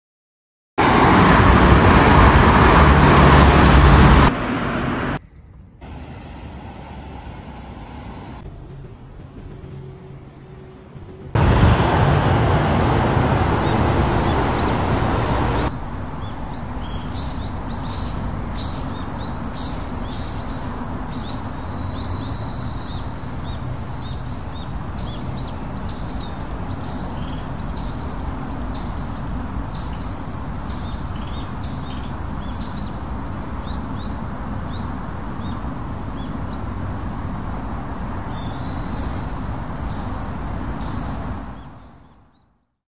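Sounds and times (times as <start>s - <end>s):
road traffic: 0.8s - 42.2s
outdoor background hiss: 11.4s - 42.4s
birds whistling short high calls: 38.4s - 42.0s.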